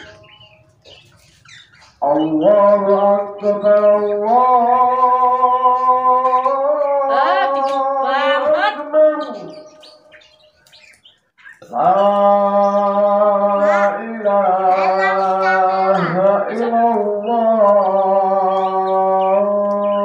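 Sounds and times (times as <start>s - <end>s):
person singing long notes: 2.0s - 9.6s, 11.6s - 20.0s.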